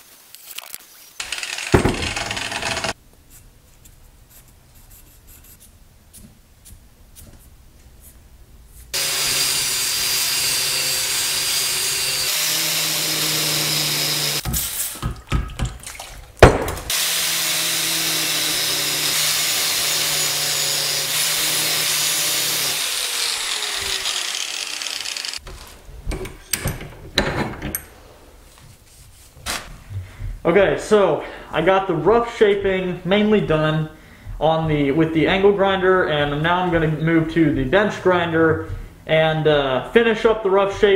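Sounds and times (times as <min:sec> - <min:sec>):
angle grinder grinding steel: 0:01.2 - 0:03.0, 0:09.0 - 0:14.4, 0:16.9 - 0:25.4
knocks: 0:01.8 - 0:02.4
soft marker strokes: 0:03.3 - 0:08.9.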